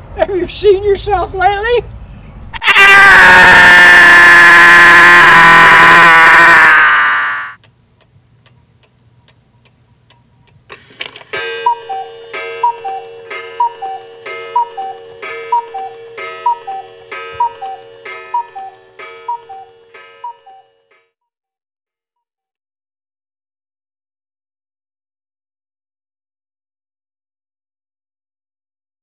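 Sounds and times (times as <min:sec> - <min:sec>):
faint clock ticking: 0:07.6 - 0:10.7
two-note alarm chime: 0:11.4 - 0:21.0.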